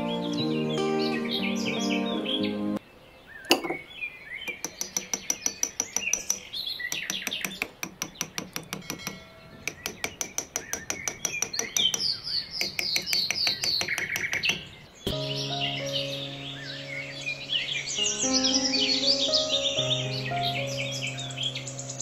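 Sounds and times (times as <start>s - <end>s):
bird chirps: 0.0s - 22.0s
fast sharp clicks: 4.5s - 14.7s.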